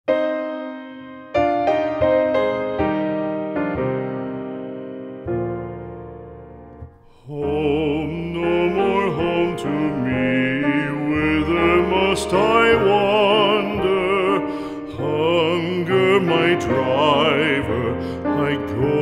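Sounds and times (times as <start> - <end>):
piano notes: 0.1 - 19.0
person singing slow ballad: 7.0 - 19.0.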